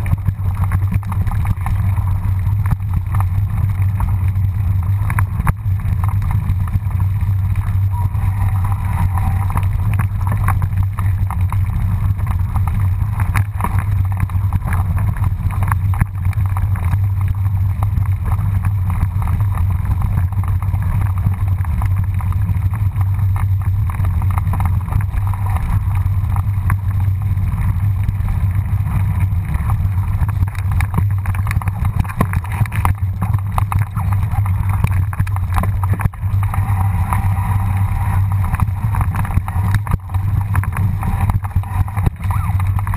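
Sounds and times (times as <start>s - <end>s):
wind buffeting microphone: 0.0s - 42.9s
bike clicks and knocks: 29.2s - 42.9s.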